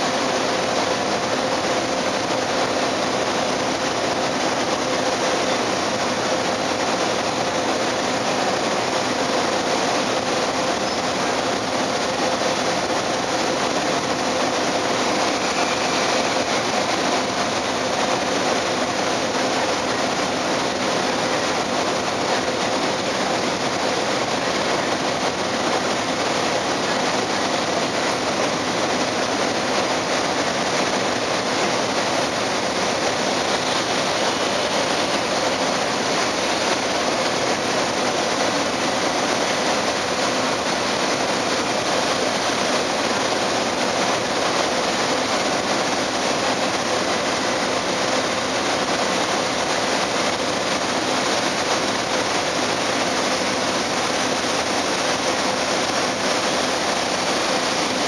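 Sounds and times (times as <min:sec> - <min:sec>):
propeller water churning: 0:00.0 - 0:58.0
ship engines rumbling: 0:00.0 - 0:58.0.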